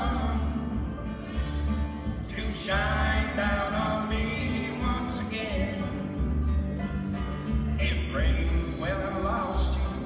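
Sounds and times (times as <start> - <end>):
person singing: 0.0 - 1.0
country string band playing: 0.0 - 10.0.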